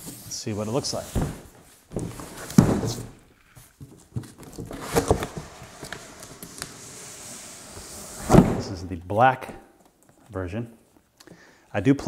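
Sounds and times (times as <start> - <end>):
cardboard scraping on table: 4.4 - 8.6.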